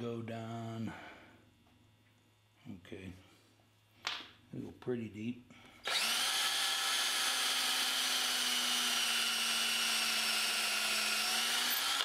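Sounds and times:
electric drill boring wood: 0:05.8 - 0:12.0.

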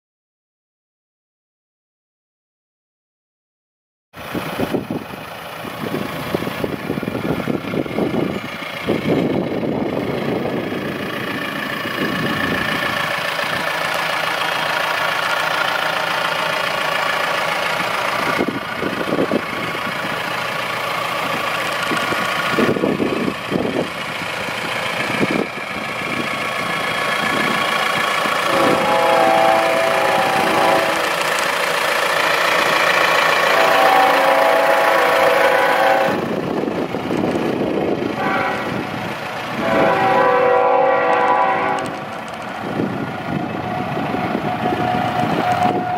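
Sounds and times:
diesel engine idling: 0:04.2 - 0:45.9
steady horn-like tones: 0:28.4 - 0:31.2, 0:33.4 - 0:36.3, 0:38.2 - 0:38.9, 0:39.6 - 0:42.1, 0:43.4 - 0:45.9.

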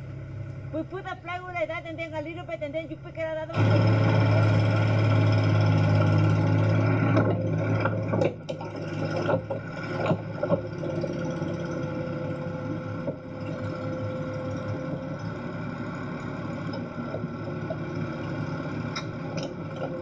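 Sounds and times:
excavator diesel engine labouring: 0:00.0 - 0:20.0
thin hydraulic whine: 0:03.5 - 0:20.0.

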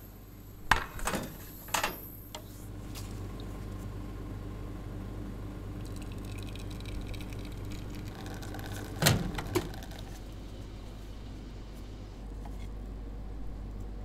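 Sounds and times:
espresso pump hum: 0:02.7 - 0:13.7
coffee trickling into cup: 0:05.7 - 0:10.4.

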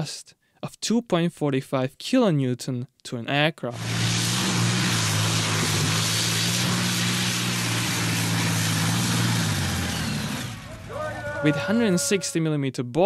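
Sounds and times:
diesel engine droning under load: 0:03.7 - 0:12.2
loud rushing noise: 0:03.8 - 0:11.6.

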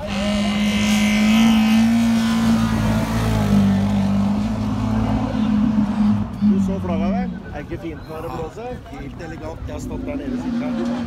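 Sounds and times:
rally car engine at high revs: 0:00.0 - 0:07.1, 0:09.9 - 0:11.0.

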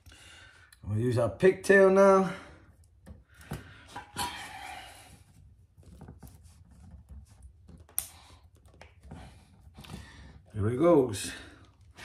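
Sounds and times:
wire rustling: 0:02.7 - 0:12.0.

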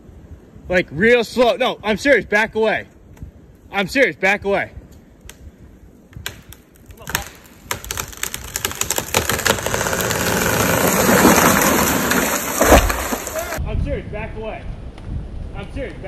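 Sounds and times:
wood cracking and snapping: 0:06.1 - 0:13.6
branches crashing: 0:06.2 - 0:13.6.

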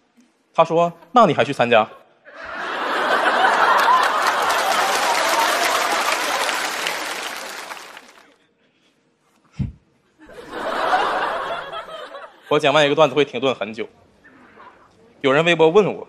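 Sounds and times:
audience applauding: 0:02.8 - 0:08.4.

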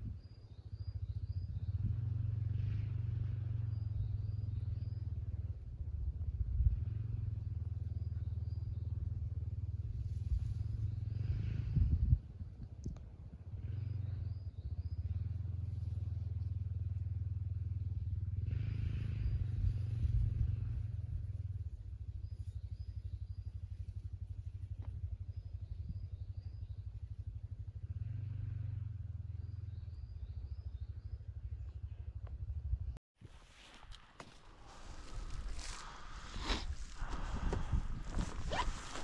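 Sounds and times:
atv engine running: 0:00.0 - 0:39.0.

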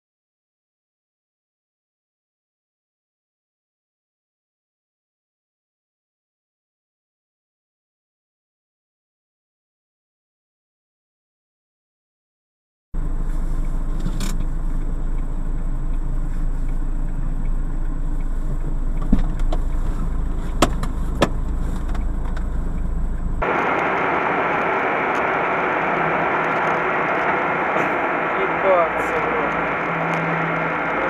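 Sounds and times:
engine and road rumble: 0:13.0 - 0:31.0
sharp knocks: 0:20.6 - 0:21.4
steady hiss: 0:23.4 - 0:31.0.

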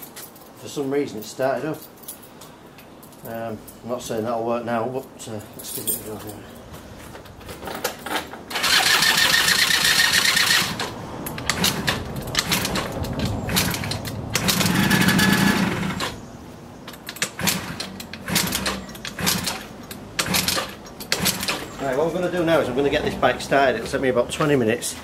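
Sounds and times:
moped engine cranking: 0:07.7 - 0:16.2, 0:17.0 - 0:22.0.

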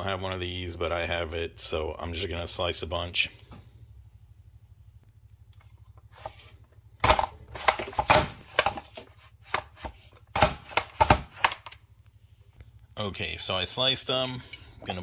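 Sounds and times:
low steady hum: 0:00.0 - 0:15.0
vegetable slicer crunching potatoes: 0:06.1 - 0:11.8.

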